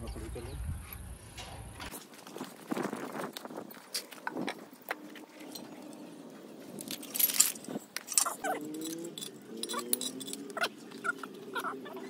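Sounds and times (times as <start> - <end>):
metal tools clinking: 1.4 - 1.9, 5.2 - 11.7.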